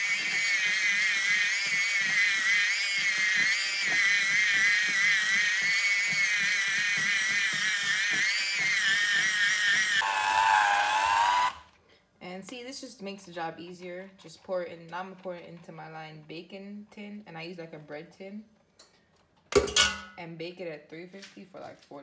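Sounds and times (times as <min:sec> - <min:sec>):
electric hand mixer whining: 0:00.0 - 0:11.7.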